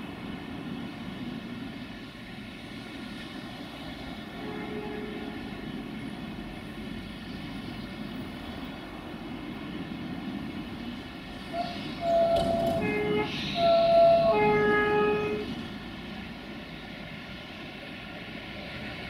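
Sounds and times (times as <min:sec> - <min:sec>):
diesel locomotive rumbling: 0:00.0 - 0:19.0
two-tone locomotive horn blasts: 0:04.3 - 0:05.6, 0:11.5 - 0:15.6.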